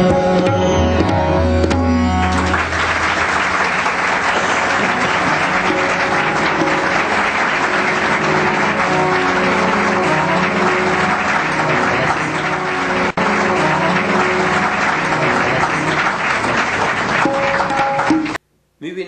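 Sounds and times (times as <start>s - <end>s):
instrumental drone: 0.0s - 18.4s
music with tabla: 0.0s - 18.4s
audience applauding: 1.7s - 18.4s.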